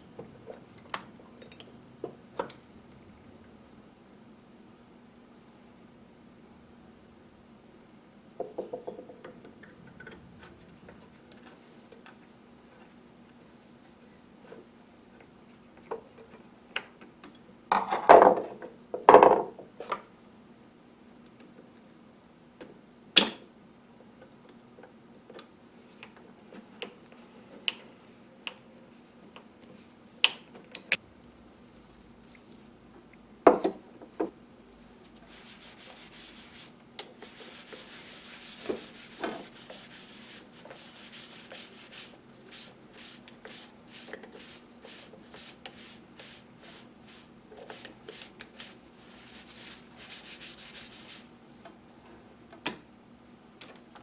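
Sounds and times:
cloth rag rubbing wood: 35.1s - 51.3s.

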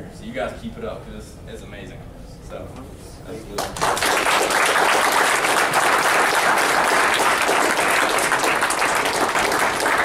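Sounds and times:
students applauding: 3.6s - 10.0s.

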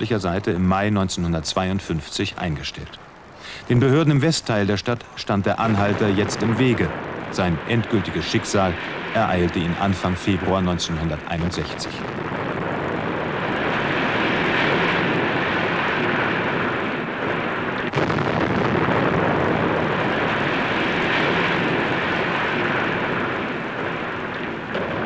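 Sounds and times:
sharp crack: 5.5s - 25.0s
walls collapsing roar: 5.5s - 25.0s.

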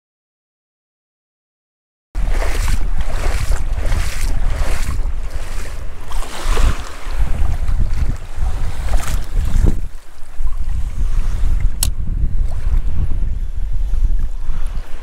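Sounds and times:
small waves lapping: 2.2s - 13.0s
wind buffeting microphone: 2.2s - 15.0s.

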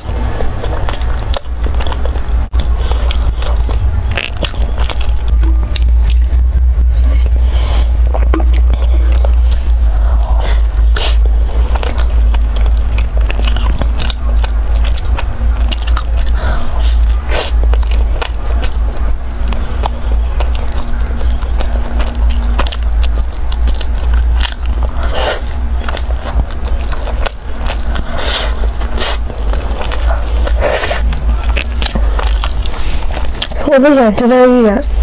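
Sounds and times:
pastry crunching while chewed: 0.0s - 6.4s, 7.2s - 35.0s
low hum: 0.0s - 35.0s
wet mouth sounds: 7.1s - 35.0s.

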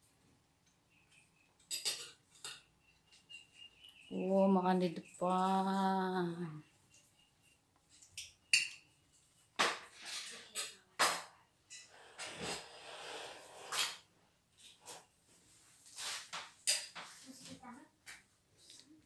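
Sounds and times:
tableware clinking on plates: 1.6s - 3.2s, 8.1s - 9.0s, 9.6s - 12.0s.

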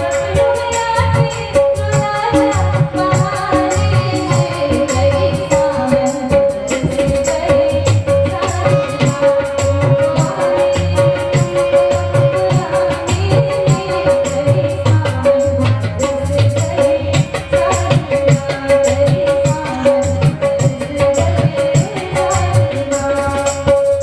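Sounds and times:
harmonium: 0.0s - 24.0s
percussion beat: 0.0s - 24.0s
woman singing: 0.0s - 24.0s.

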